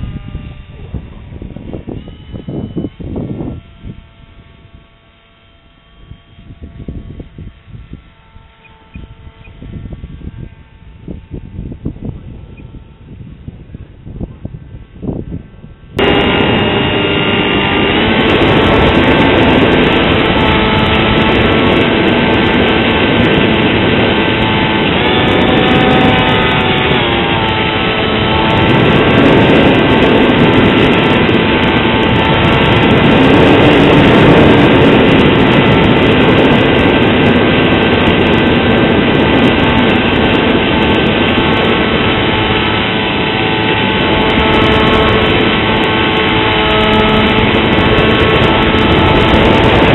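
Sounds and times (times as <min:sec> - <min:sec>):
model plane motor whine: 0:00.0 - 0:49.9
rush of air: 0:14.7 - 0:49.9.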